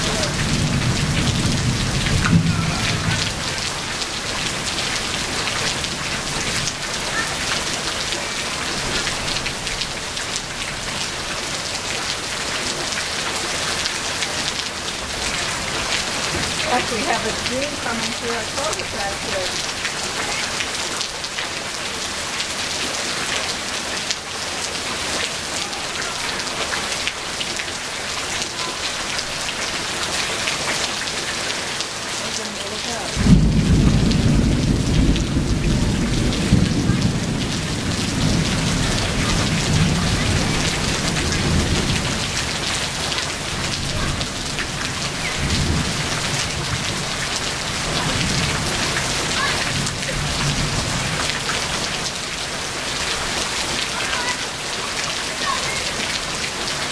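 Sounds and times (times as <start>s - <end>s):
thunder crack and rumble: 0.0s - 6.4s, 33.1s - 42.6s
heavy rain pouring: 0.0s - 56.9s.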